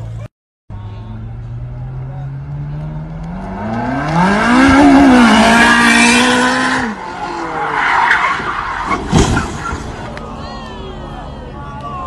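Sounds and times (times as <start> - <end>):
car engine revving: 1.0 - 10.2.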